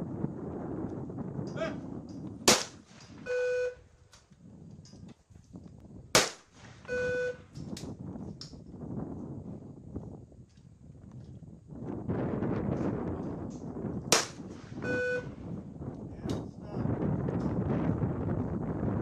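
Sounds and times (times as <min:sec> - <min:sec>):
shotgun shots: 0:02.4 - 0:03.2, 0:06.2 - 0:06.8, 0:14.1 - 0:14.8
short electronic beep: 0:03.3 - 0:03.8, 0:06.9 - 0:07.4, 0:14.8 - 0:15.3.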